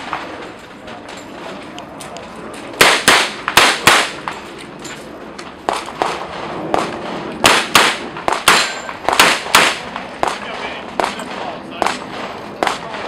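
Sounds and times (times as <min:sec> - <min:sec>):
pistol shots with echo: 0:02.8 - 0:04.4, 0:05.6 - 0:13.0.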